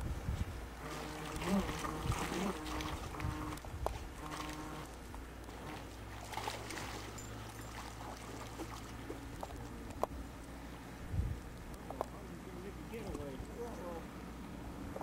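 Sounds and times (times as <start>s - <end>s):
low steady rumble: 0.0s - 15.0s
shallow water splashing: 0.6s - 10.1s.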